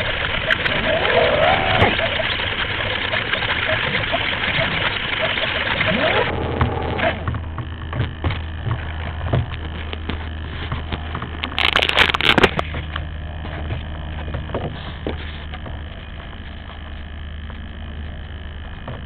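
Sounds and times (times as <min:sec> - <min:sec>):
steady low hum: 0:00.0 - 0:19.0
hand scraping over camera: 0:09.6 - 0:13.9.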